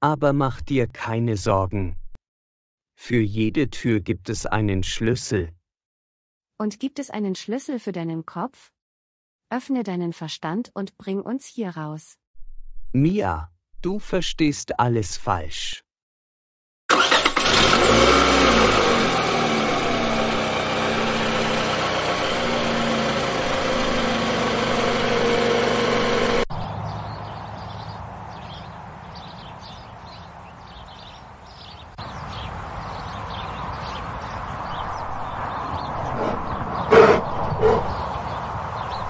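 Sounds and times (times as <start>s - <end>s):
car engine revving: 17.0s - 26.5s
car running along road: 17.4s - 39.0s.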